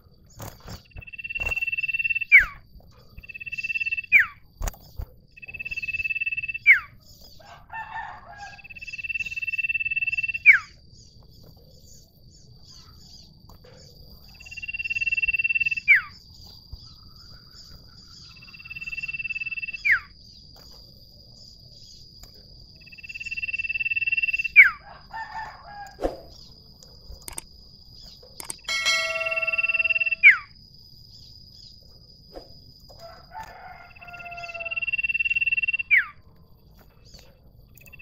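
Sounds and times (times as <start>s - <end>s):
bird chattering calls: 28.4s - 30.5s
thin high whine: 28.7s - 30.4s
bird whistling: 28.7s - 30.5s.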